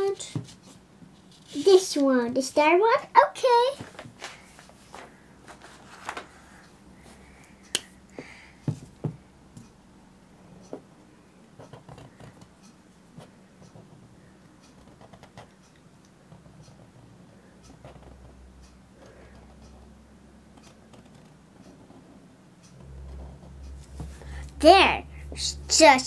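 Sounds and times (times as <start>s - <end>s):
marker scratching on paper: 17.7s - 18.4s.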